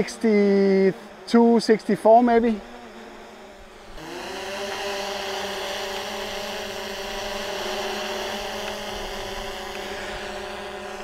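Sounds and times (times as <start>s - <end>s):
drone propeller hum: 0.0s - 11.0s.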